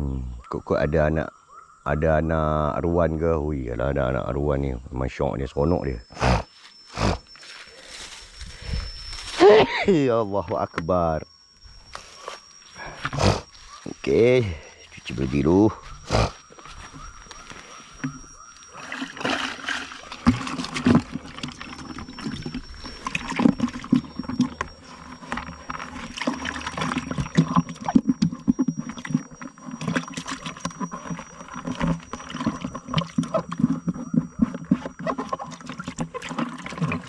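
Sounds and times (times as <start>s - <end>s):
water sloshing in plastic pot: 12.8s - 37.0s.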